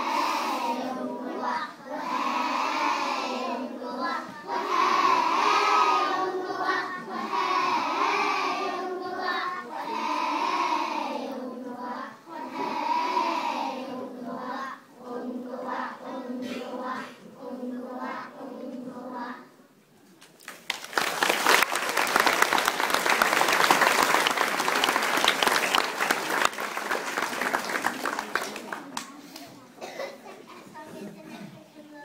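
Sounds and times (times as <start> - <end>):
children singing together: 0.0 - 19.6.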